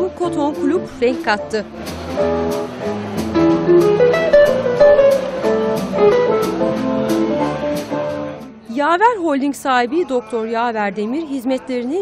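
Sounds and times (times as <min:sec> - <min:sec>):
live band playing: 0:00.0 - 0:08.6
drum and cymbal hits: 0:01.8 - 0:08.0.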